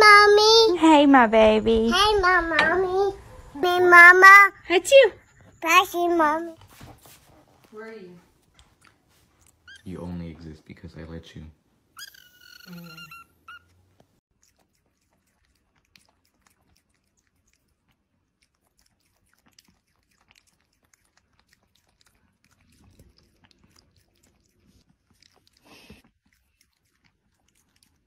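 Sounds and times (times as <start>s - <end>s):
cat chewing plastic syringe: 14.4s - 28.0s.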